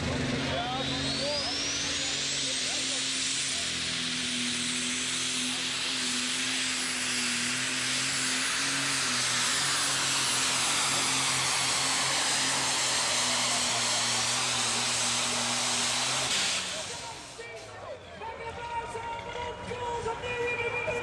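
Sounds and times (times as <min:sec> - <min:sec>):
high turbo whine: 0:00.0 - 0:17.8
diesel engine at full power: 0:00.0 - 0:21.0.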